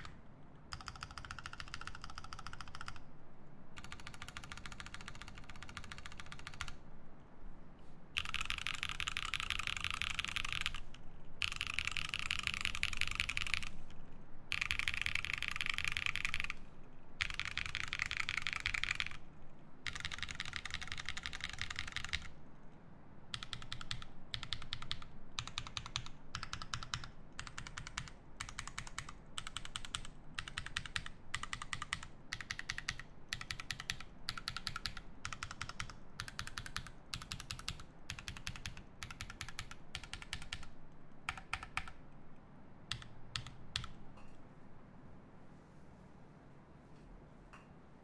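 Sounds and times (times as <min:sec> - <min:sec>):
mechanical keyboard typing: 0:00.0 - 0:03.0, 0:03.8 - 0:06.8, 0:08.2 - 0:16.6, 0:17.2 - 0:19.2, 0:19.8 - 0:22.4, 0:23.3 - 0:42.0, 0:42.9 - 0:44.0.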